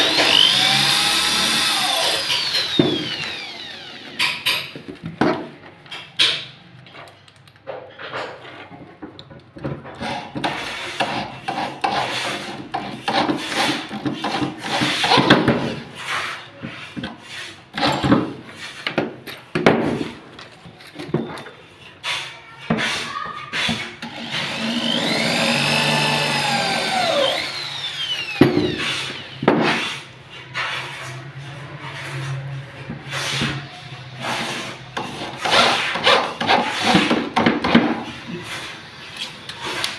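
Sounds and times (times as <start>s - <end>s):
electric drill driving screws: 0.0s - 4.6s, 24.0s - 29.4s.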